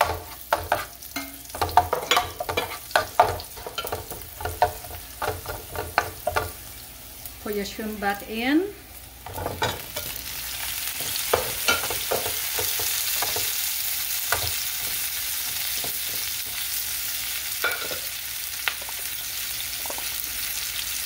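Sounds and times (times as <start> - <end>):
spatula scraping on pan: 0.0 - 6.6
shrimp sizzling in hot oil: 0.0 - 21.0.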